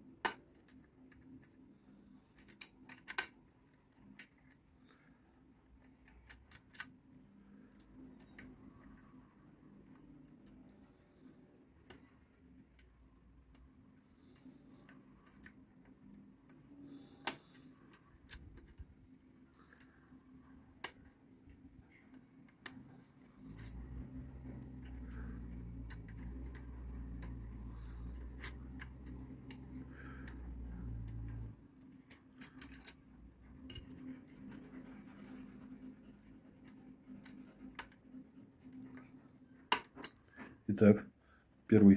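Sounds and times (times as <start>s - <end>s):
steady low hum: 0.0s - 41.9s
lock pick clicks and scratches: 2.3s - 5.0s, 5.7s - 9.0s, 11.8s - 35.4s.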